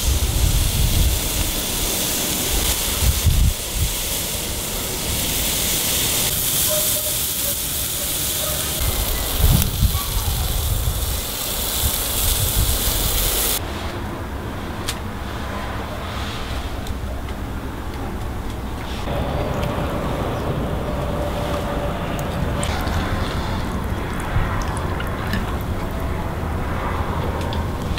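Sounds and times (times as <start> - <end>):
wind rumble on microphone: 0.0 - 4.7, 8.8 - 13.6, 19.0 - 27.9
fish sizzling on a grill: 0.0 - 13.6.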